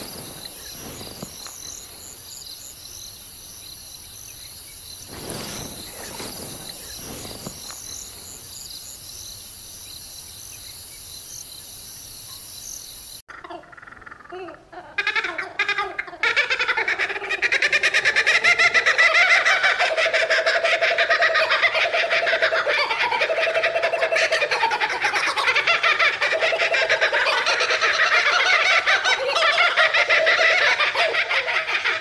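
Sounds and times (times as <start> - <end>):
kookaburras laughing: 13.3 - 32.0.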